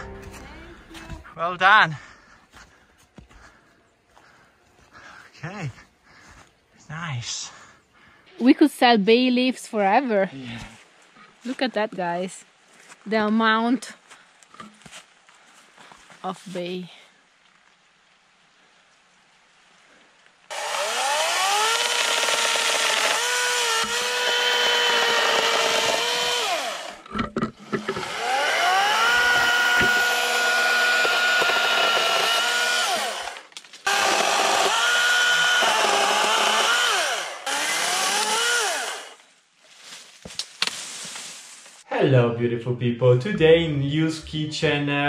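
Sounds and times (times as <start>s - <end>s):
electric chainsaw cutting branches: 20.5s - 39.2s.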